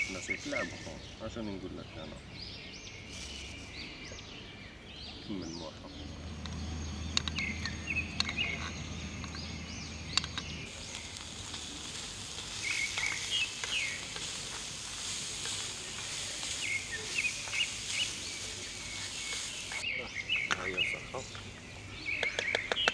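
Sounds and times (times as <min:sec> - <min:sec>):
birds chirping: 0:00.0 - 0:22.9
onions sizzling in a frying pan: 0:10.7 - 0:19.9.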